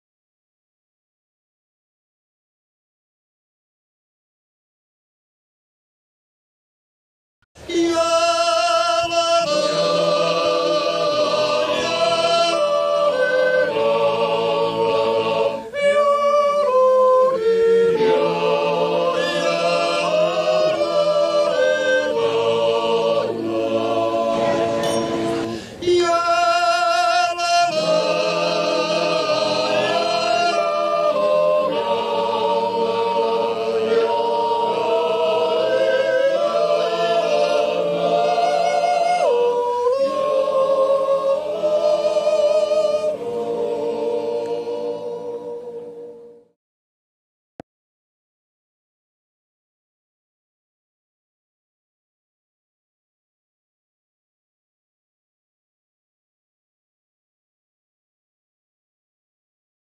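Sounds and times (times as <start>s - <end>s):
a cappella choral singing: 7.6s - 46.6s.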